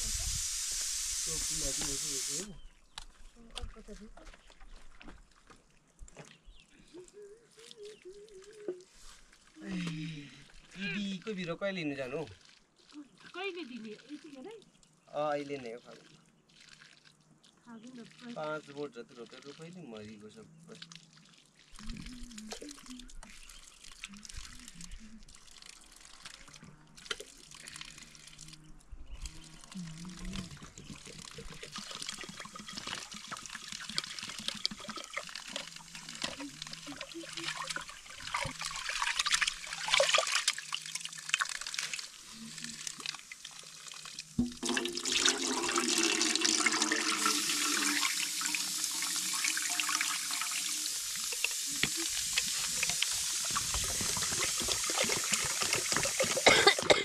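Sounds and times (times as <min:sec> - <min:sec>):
rice washed by hand in water: 0:00.0 - 0:02.6, 0:07.0 - 0:14.4, 0:15.2 - 0:17.3, 0:18.0 - 0:28.6, 0:29.2 - 0:57.0
running water rushing: 0:00.0 - 0:02.7, 0:29.2 - 0:57.0.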